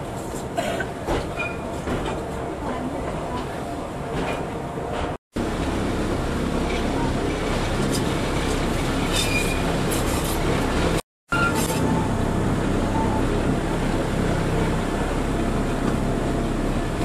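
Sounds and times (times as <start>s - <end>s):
railway car wheels rumbling: 0.0s - 17.0s
brief squeak: 1.4s - 1.7s, 9.1s - 9.7s, 11.3s - 12.1s.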